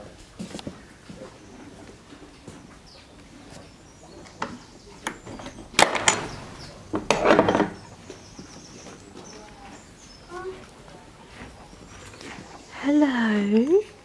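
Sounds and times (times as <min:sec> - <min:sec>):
door clattering and rattling: 0:05.2 - 0:07.9.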